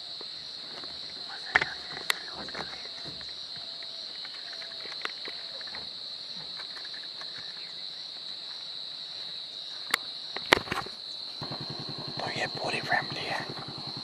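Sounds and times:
insects singing: 0.0 - 14.0.

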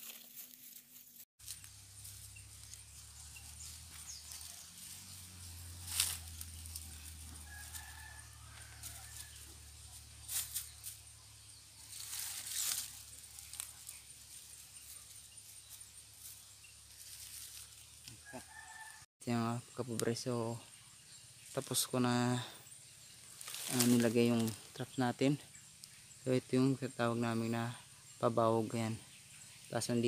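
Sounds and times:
chickens and rooster calling: 5.9 - 10.0, 18.1 - 19.1
rustling close by: 11.8 - 18.0, 23.1 - 24.7.

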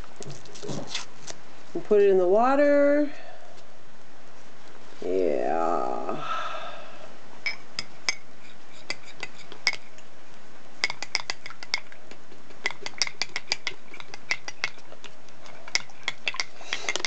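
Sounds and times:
metal spoon clinking in glass mug: 7.4 - 8.2.

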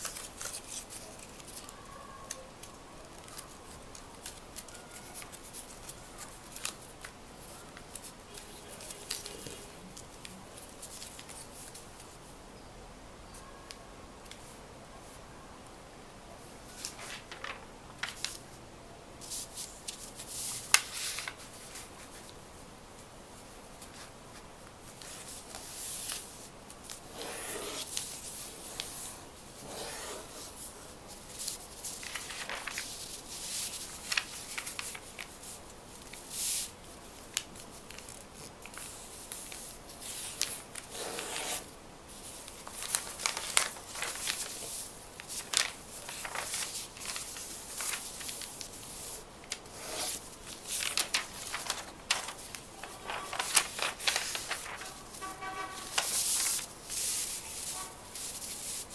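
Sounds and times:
paper rustling and crinkling: 0.0 - 12.2, 16.6 - 18.6, 19.2 - 22.4, 23.8 - 58.9.

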